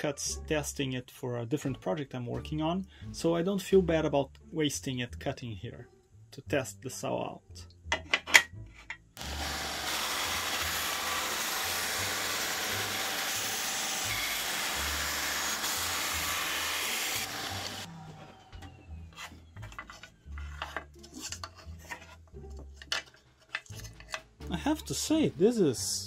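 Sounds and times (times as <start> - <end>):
band saw cutting hard wood: 9.2 - 17.9.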